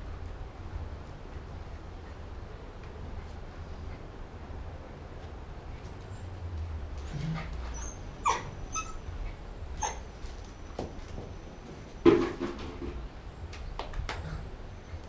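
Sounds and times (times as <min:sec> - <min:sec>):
small dog yipping and barking: 0:07.7 - 0:09.1, 0:09.8 - 0:10.1.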